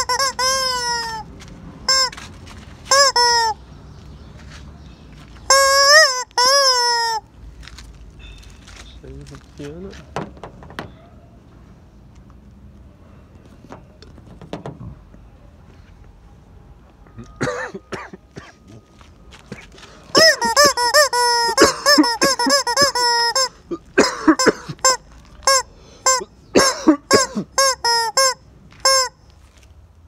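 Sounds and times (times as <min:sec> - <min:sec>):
rubber chicken toy squawking: 0:00.0 - 0:01.3, 0:01.9 - 0:02.2, 0:02.9 - 0:03.6, 0:05.5 - 0:07.3, 0:20.1 - 0:23.6, 0:24.4 - 0:29.2.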